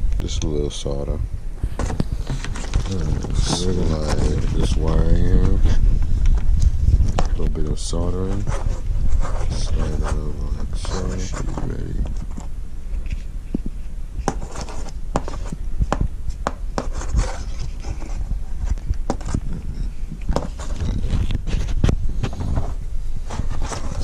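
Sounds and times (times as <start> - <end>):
low steady rumble: 0.0 - 24.0
hands rubbing and clicking wires: 1.6 - 24.0.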